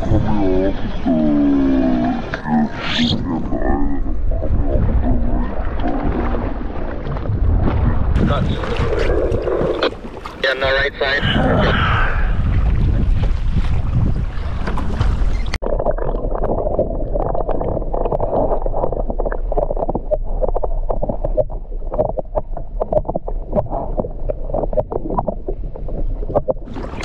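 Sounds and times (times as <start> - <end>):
wind on microphone: 0.0 - 15.6
water sloshing and gurgling: 0.0 - 27.0.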